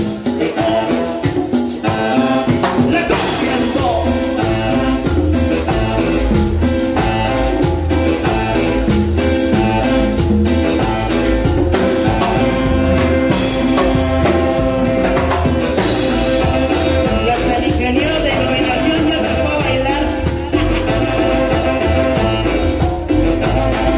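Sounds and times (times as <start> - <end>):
congas: 0.0 - 23.9
drum kit: 0.0 - 23.9
live band playing: 0.0 - 23.9.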